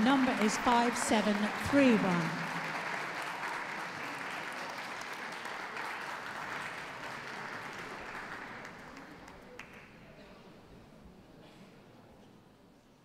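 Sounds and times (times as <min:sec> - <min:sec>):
audience applauding: 0:00.0 - 0:09.9.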